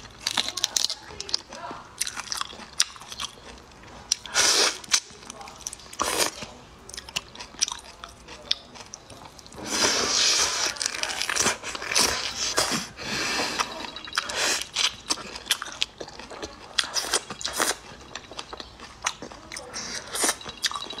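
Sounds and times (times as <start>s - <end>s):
shells crunching while chewing: 0.0s - 21.0s
wet sucking: 9.6s - 15.1s.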